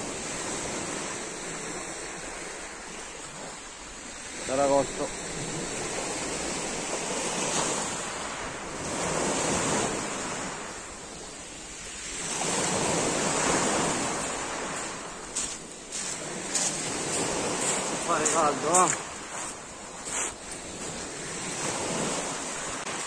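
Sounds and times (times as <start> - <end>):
waves washing up pebble beach: 0.0 - 23.0
footsteps crunching on shingle: 14.2 - 21.0.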